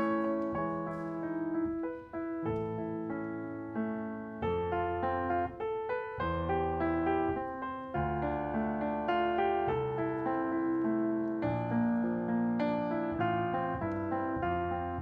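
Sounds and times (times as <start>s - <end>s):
piano playing slow chords: 0.0s - 15.0s.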